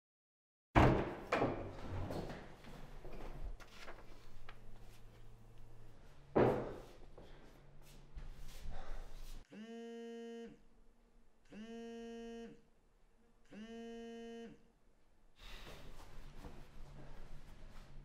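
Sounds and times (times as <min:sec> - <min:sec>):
low room noise: 0:00.8 - 0:09.4.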